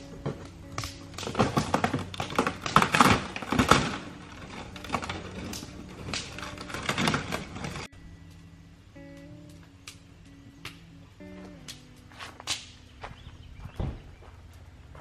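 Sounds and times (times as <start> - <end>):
rapid crackling and clicking: 0.0 - 8.4
faint background music: 0.0 - 15.0.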